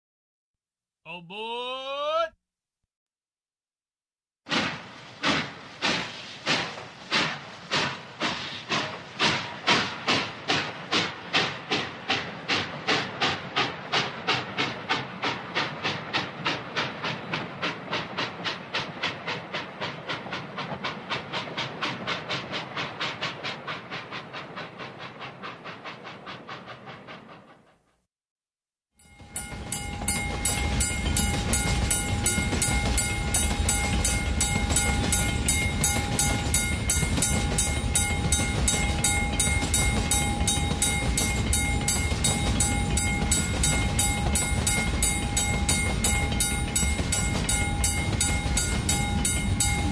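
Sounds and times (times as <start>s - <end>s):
regular clicking of train: 4.5s - 28.0s, 29.0s - 49.9s
steam locomotive chuffing: 4.5s - 28.0s, 29.0s - 49.9s
train rumbling: 4.5s - 28.0s, 29.0s - 49.9s.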